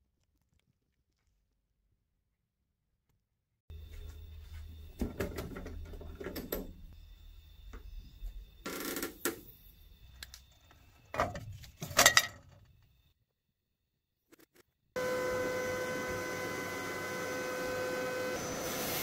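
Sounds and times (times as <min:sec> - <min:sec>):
metal parts clattering on grate: 0:11.2 - 0:12.6.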